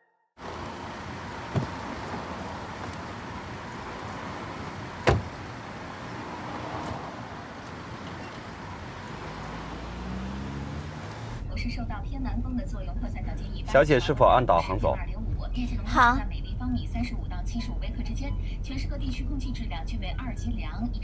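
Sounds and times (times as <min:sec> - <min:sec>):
car door shutting: 0:00.4 - 0:09.7
car engine hum: 0:00.4 - 0:21.0
street ambience: 0:00.4 - 0:21.0
car door handle clicking: 0:01.5 - 0:01.8, 0:05.0 - 0:05.4.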